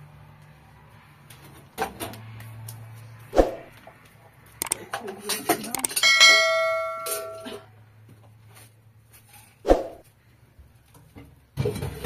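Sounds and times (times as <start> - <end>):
kitchenware ringing bell-like: 5.8 - 7.6.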